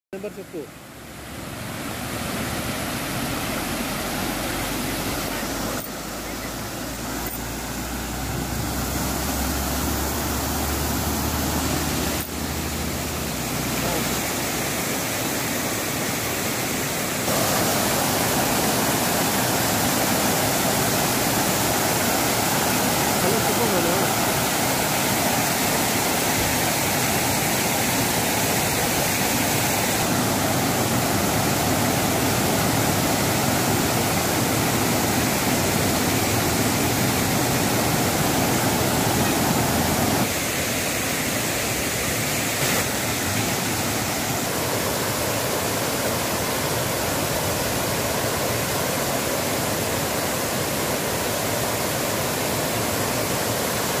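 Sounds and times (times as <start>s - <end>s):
water pouring and rushing: 0.6s - 54.0s.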